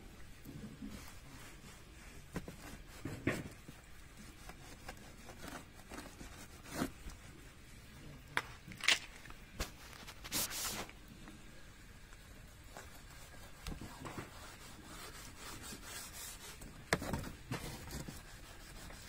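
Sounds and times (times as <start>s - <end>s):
wash mitt scrubbing car: 0.6s - 7.5s, 12.4s - 19.0s.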